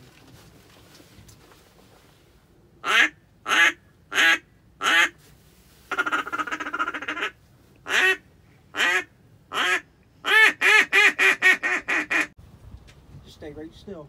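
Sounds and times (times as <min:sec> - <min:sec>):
duck call quacks: 0:02.8 - 0:05.2, 0:05.9 - 0:08.2, 0:08.8 - 0:12.3.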